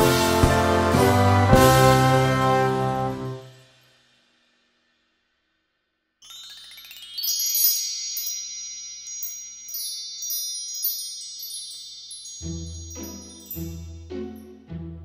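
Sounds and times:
rising chime sweep: 6.2s - 14.7s.

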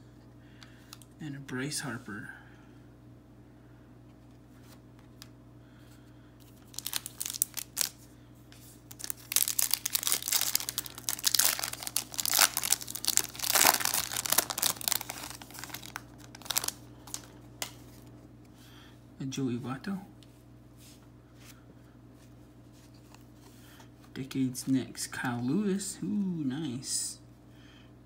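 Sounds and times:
foil wrapper tearing and crinkling: 6.6s - 8.0s, 8.9s - 18.0s.

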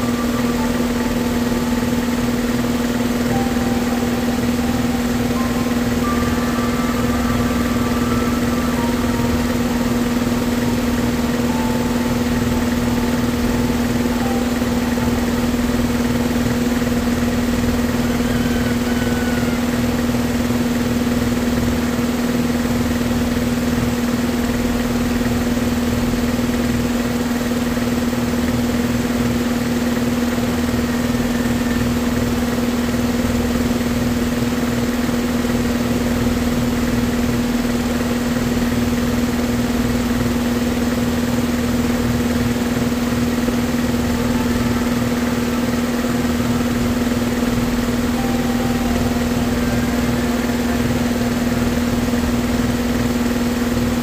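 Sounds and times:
steady machine hum: 0.0s - 54.0s.

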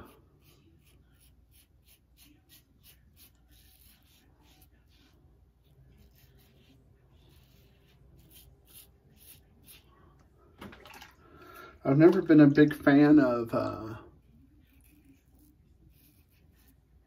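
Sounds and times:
razor scraping stubble: 0.0s - 10.2s, 14.2s - 17.0s.

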